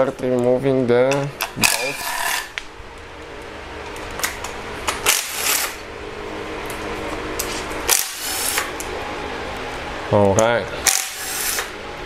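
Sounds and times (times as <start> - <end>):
power tool running: 4.9 - 5.9, 7.4 - 8.8, 10.8 - 11.8
harsh power tool bursts: 5.0 - 5.8, 7.9 - 8.7, 10.9 - 11.7.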